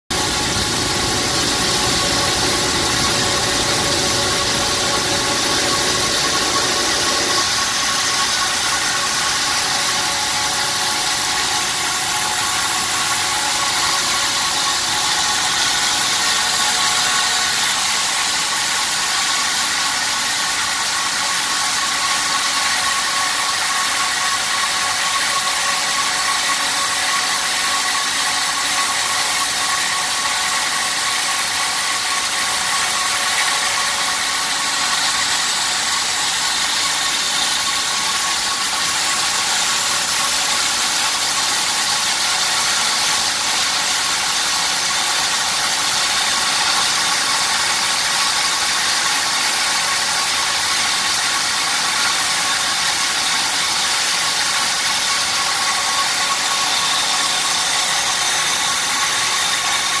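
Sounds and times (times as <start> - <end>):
steady high hum: 0.1 - 18.0
wire saw cutting concrete: 0.1 - 60.0.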